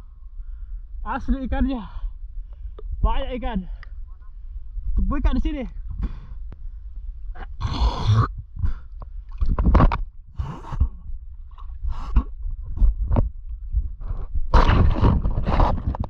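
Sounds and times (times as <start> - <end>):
water sloshing against camera: 8.4 - 16.0.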